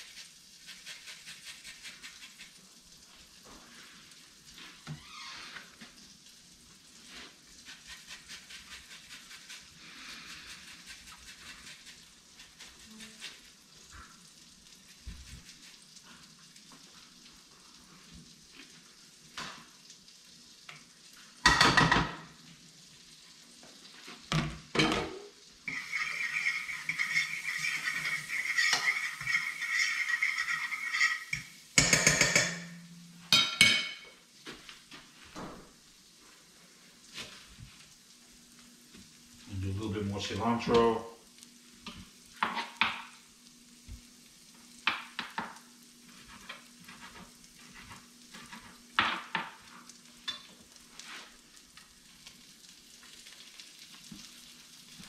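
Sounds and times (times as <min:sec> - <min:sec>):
butter sizzling in a frying pan: 0:00.0 - 0:55.0
pans and utensils clattering: 0:21.4 - 0:22.4, 0:24.4 - 0:34.2, 0:50.2 - 0:50.5
water running into sink: 0:24.2 - 0:32.8.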